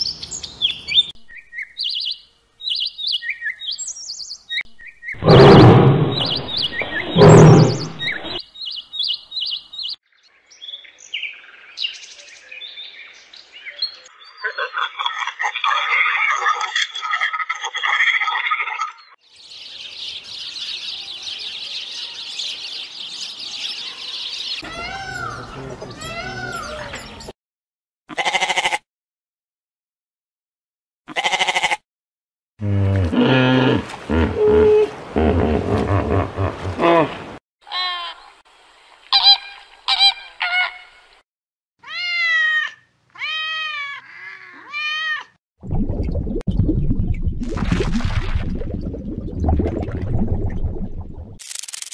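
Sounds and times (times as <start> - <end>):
small birds chirping: 0.0 - 14.8, 19.0 - 27.3
low rumbling water: 5.2 - 8.4, 32.6 - 37.4, 45.6 - 51.4
cat meowing: 24.6 - 25.3, 26.0 - 26.9, 41.8 - 45.4.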